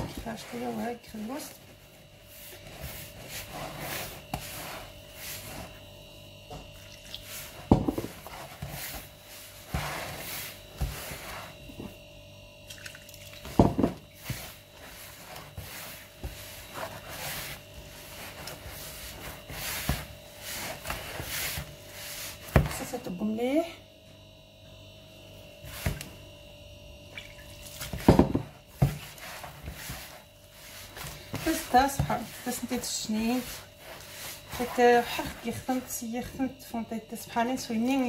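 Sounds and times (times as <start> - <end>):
hand kneading dough: 0.0 - 12.0, 13.4 - 23.4, 27.2 - 38.0.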